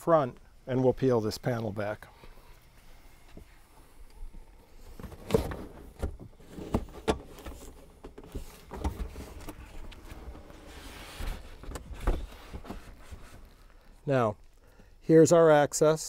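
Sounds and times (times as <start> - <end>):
fabric panel rustling and scraping: 4.7 - 13.7.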